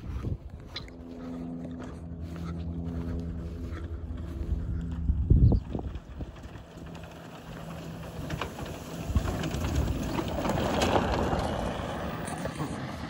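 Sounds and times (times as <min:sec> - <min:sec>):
wind on microphone: 0:00.0 - 0:01.0, 0:04.4 - 0:06.6
golf cart motor humming: 0:00.0 - 0:13.0
tyres crunching over gravel: 0:00.0 - 0:13.0.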